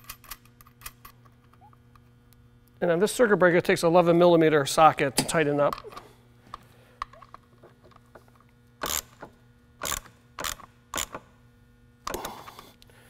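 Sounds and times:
hand ratchet clicking: 8.8s - 11.3s.

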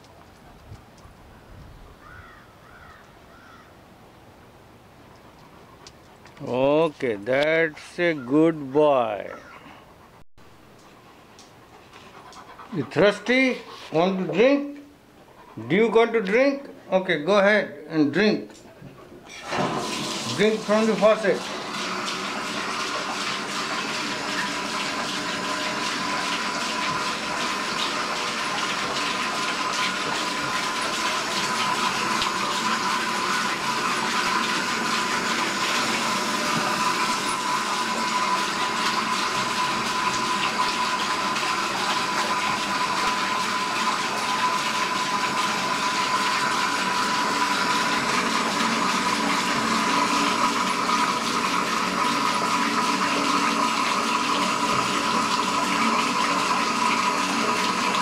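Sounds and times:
faucet running into sink: 19.3s - 58.0s.

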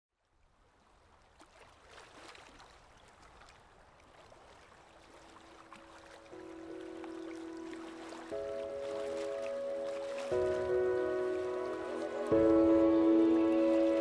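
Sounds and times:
water-like rushing noise: 4.3s - 14.0s
held music notes: 6.3s - 14.0s.

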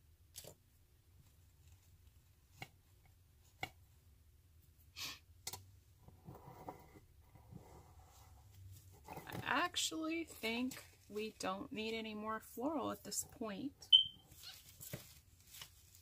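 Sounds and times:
artificial flower stems rustling: 7.6s - 16.0s.

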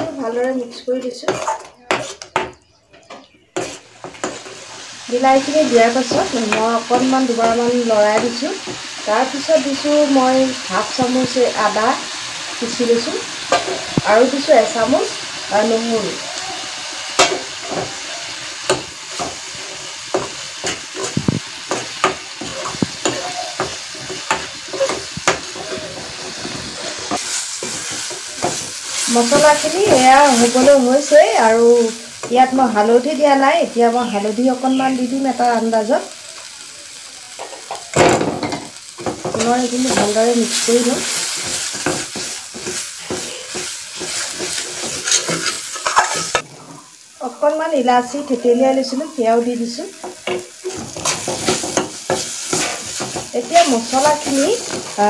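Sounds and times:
spatula scraping a pan: 0.7s - 5.0s, 16.8s - 31.1s, 38.9s - 47.0s, 50.0s - 55.0s
metal ladle stirring and scraping: 3.5s - 4.6s, 41.1s - 46.8s, 50.6s - 55.0s
paste sizzling in oil: 3.5s - 55.0s.

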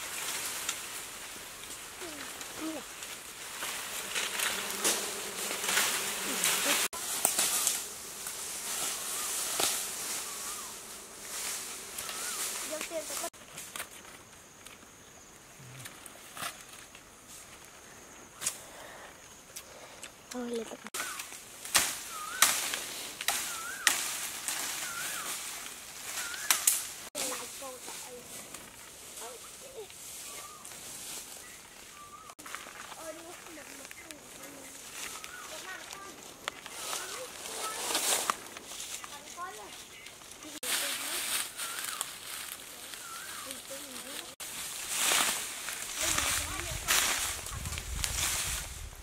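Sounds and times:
bees buzzing: 0.0s - 13.4s, 20.4s - 28.3s
bamboo leaves rustling: 0.0s - 49.0s
bird whistled call: 12.0s - 12.5s, 22.1s - 22.6s, 23.4s - 24.0s, 24.8s - 25.4s, 26.2s - 26.7s, 30.2s - 30.7s, 31.4s - 32.3s, 41.5s - 42.0s, 42.9s - 43.6s.

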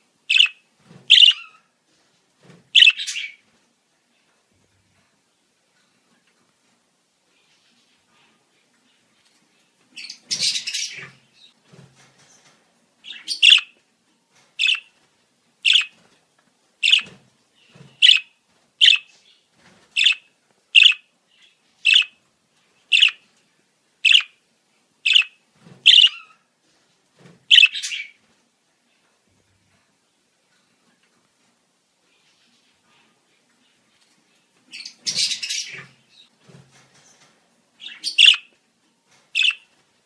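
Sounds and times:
budgerigar chattering and chirping: 0.3s - 1.5s, 2.8s - 3.3s, 13.1s - 13.7s, 14.6s - 14.9s, 15.7s - 15.9s, 16.8s - 17.1s, 18.0s - 19.1s, 20.8s - 21.0s, 21.9s - 22.1s, 22.9s - 23.2s, 24.1s - 24.3s, 25.1s - 25.3s, 25.9s - 26.3s, 27.5s - 28.1s, 37.9s - 38.5s, 39.4s - 39.6s.

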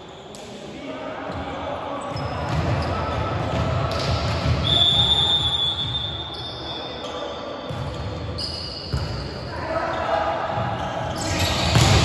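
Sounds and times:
players and spectators in hall: 0.0s - 12.0s
referee's whistle blast: 4.6s - 6.8s.

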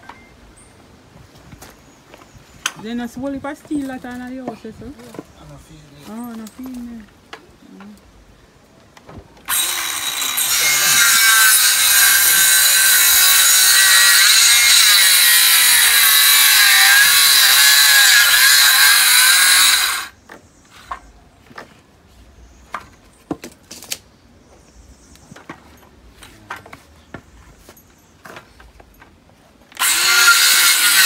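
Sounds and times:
circular saw cutting wood: 9.5s - 20.2s, 29.8s - 31.0s.

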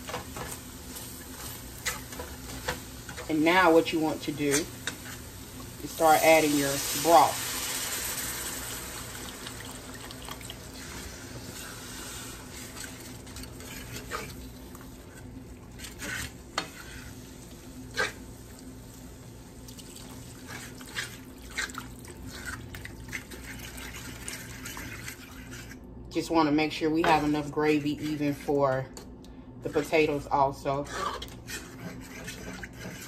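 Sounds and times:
metal whisk scraping a pan: 1.5s - 5.3s, 10.8s - 14.4s, 15.1s - 17.2s, 20.4s - 25.8s, 29.7s - 33.0s.

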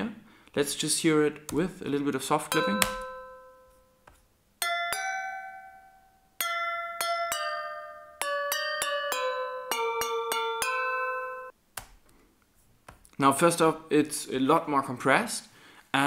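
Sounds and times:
bell-like glass notes melody: 2.5s - 4.0s, 4.6s - 11.5s.

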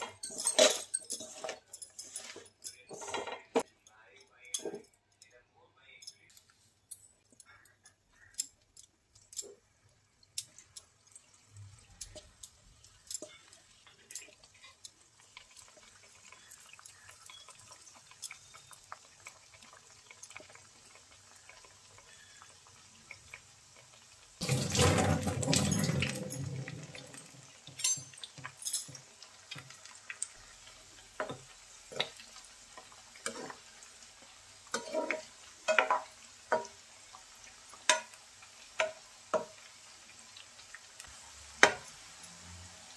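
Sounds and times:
deep-frying sizzle with pops: 7.2s - 24.4s, 26.7s - 42.9s
spoon knocking against pan: 34.8s - 36.8s, 38.8s - 39.6s.

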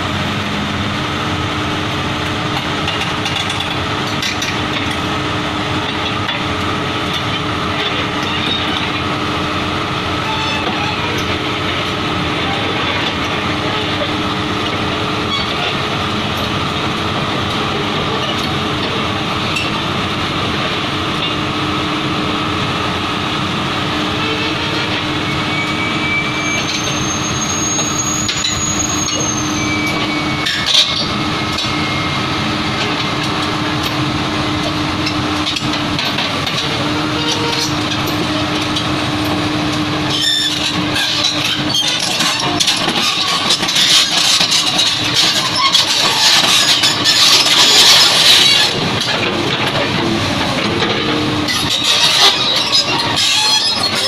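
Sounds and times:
excavator diesel engine running: 0.0s - 54.0s
steel tracks clanking: 0.0s - 54.0s.

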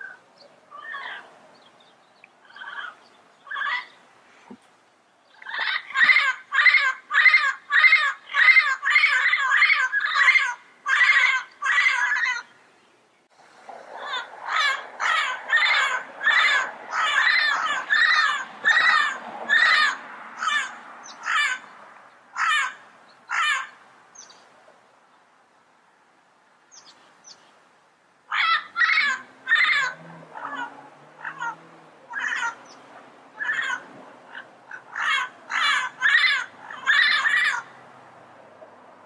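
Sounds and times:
parrot squawking: 0.0s - 1.3s, 2.4s - 4.0s, 5.4s - 12.5s, 14.0s - 21.7s, 22.4s - 23.7s, 28.3s - 32.8s, 33.4s - 37.8s.

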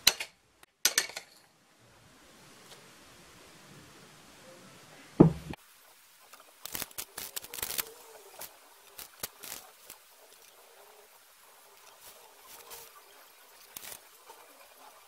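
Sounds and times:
loud knock: 5.2s - 5.6s.

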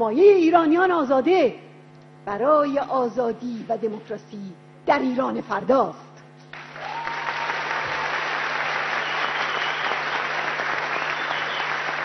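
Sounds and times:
large audience applauding: 6.5s - 12.0s.

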